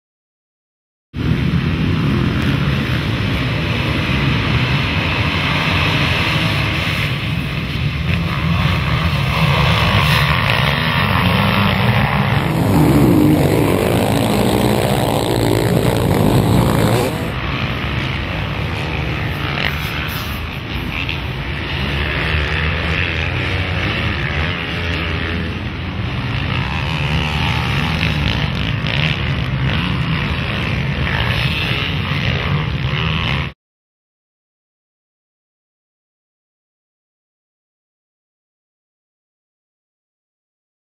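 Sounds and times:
dirt bike engines revving: 1.2 - 33.6.

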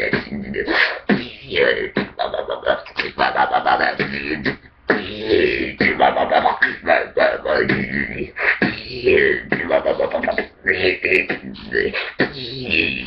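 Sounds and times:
beatboxed wobble bass: 0.0 - 13.0
beatboxing percussive hits: 0.0 - 13.0.

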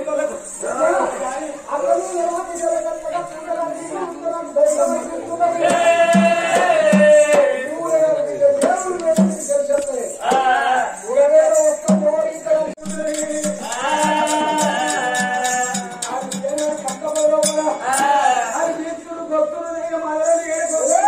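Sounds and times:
jingling percussion: 4.3 - 18.8
voices singing folk melody: 4.8 - 9.5, 10.1 - 19.3
hand drum beating: 8.6 - 9.6, 12.8 - 18.1.

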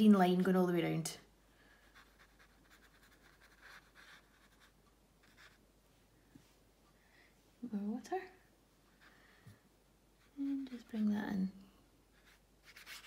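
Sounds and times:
paintbrush strokes on paper: 1.7 - 6.7, 8.8 - 13.0.

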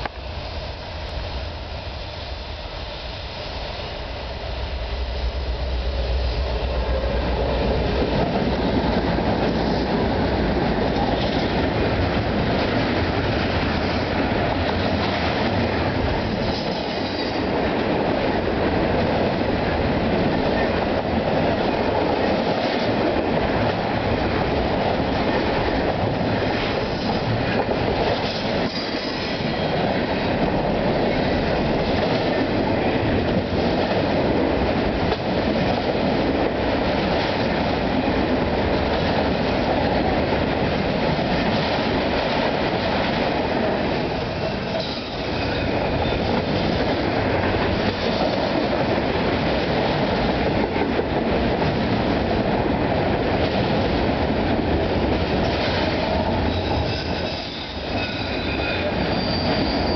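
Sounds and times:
diesel locomotive rumble: 0.0 - 16.4
train wheels on rails: 0.0 - 59.9
high wheel squeals: 56.5 - 59.9.

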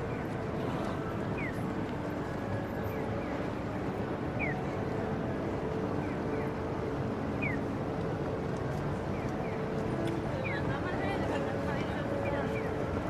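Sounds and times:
street traffic: 0.0 - 13.0
crowd voices: 8.5 - 13.0.

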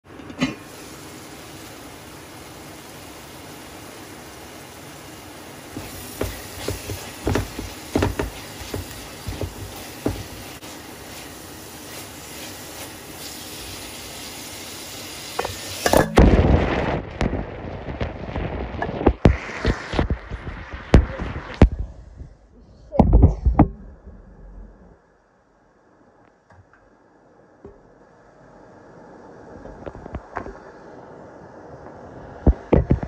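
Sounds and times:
onions sizzling in a pan: 0.5 - 21.4
spatula scraping a pan: 5.8 - 13.4.

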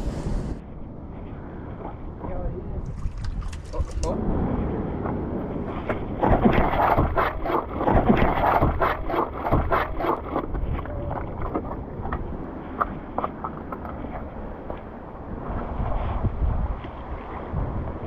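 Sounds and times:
wind noise on microphone: 0.0 - 18.0
sea washing around rocks: 5.6 - 18.0.

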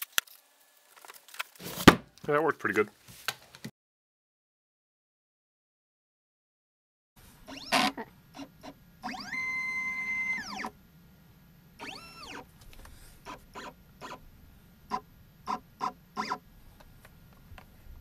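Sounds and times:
stepper motors whining: 7.4 - 10.8, 11.8 - 12.5, 13.2 - 14.3.

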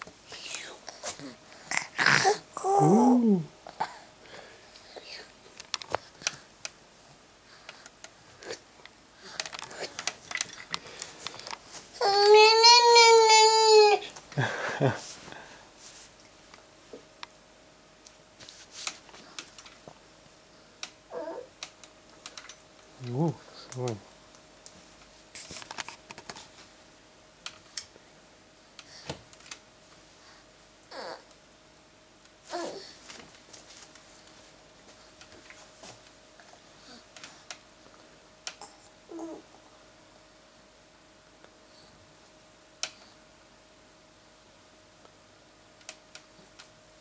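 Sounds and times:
toddler crying: 12.0 - 14.1, 30.9 - 31.2.

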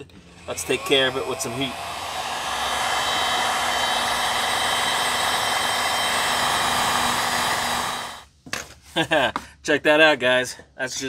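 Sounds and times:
heat gun blowing air: 0.4 - 8.3.

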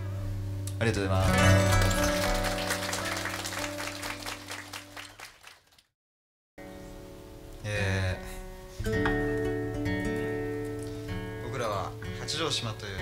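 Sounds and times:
acoustic guitar: 0.0 - 4.1, 6.6 - 13.0
audience applause: 1.2 - 5.9.

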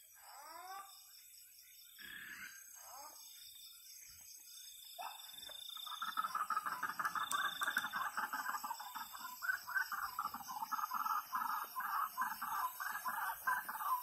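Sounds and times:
chorus of small animals calling: 5.0 - 14.0
faint rhythmic trilling: 5.0 - 14.0.

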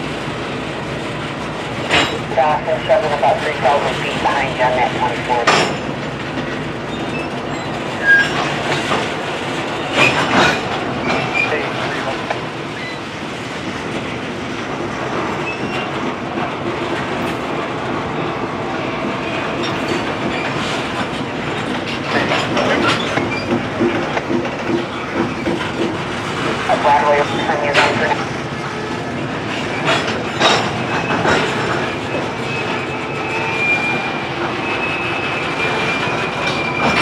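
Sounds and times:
train clanks: 0.0 - 37.0
train wheels clicking over rail joints: 0.1 - 2.3, 5.4 - 26.7, 27.7 - 37.0
wheel squeals: 6.9 - 9.0, 12.7 - 13.1, 15.4 - 15.9, 22.2 - 23.6, 32.4 - 37.0.

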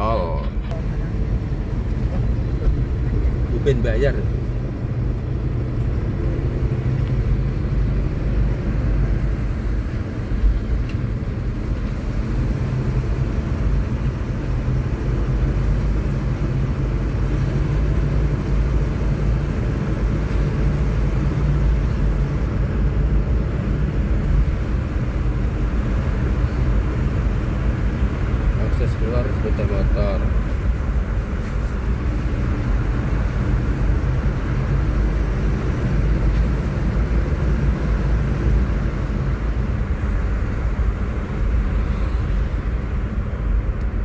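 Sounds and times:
car engine and tyre rumble: 0.0 - 44.0.

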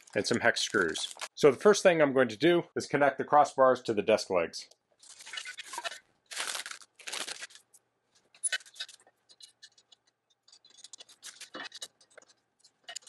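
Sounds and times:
plastic bag rustling: 0.0 - 1.4, 5.0 - 9.4.

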